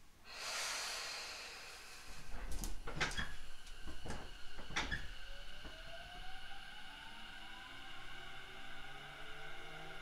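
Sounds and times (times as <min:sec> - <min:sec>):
compressed air hissing: 0:00.2 - 0:02.4.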